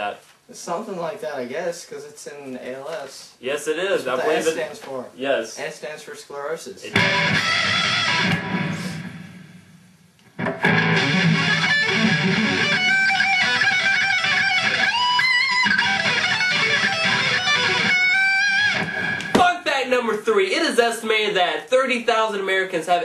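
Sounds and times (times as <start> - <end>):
electric guitar lead line: 6.9 - 19.3
electric guitar chord ringing: 7.0 - 9.7, 10.4 - 19.3.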